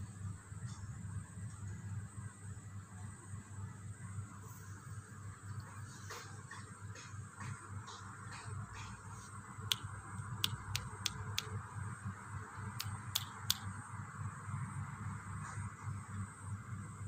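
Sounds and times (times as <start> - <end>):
fingers snapping: 9.7 - 11.6, 12.8 - 13.7.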